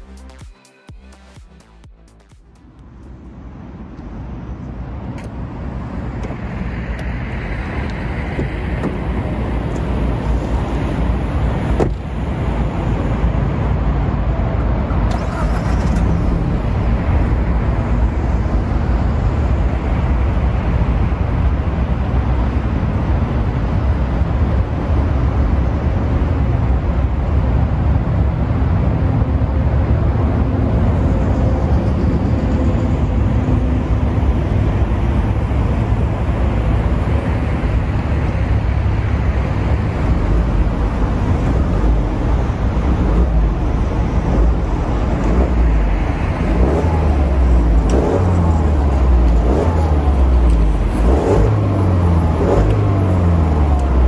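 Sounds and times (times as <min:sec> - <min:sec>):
car engine idling: 0:14.6 - 0:54.0.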